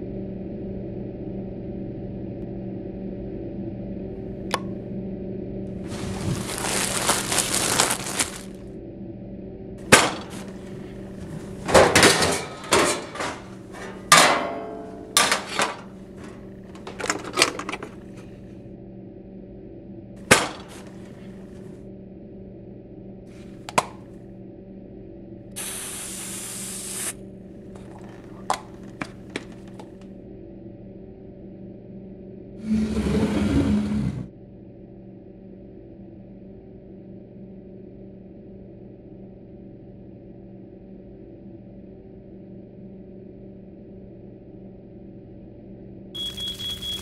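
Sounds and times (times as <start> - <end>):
plastic bag crinkling: 5.8 - 8.6, 15.5 - 18.2, 20.3 - 21.6, 27.8 - 30.0
steady low hum: 8.1 - 26.5
utensils clicking and knocking: 9.9 - 18.3, 23.7 - 24.0, 27.8 - 30.0
stove knob clicking: 23.7 - 24.0
brief hiss: 25.6 - 27.2.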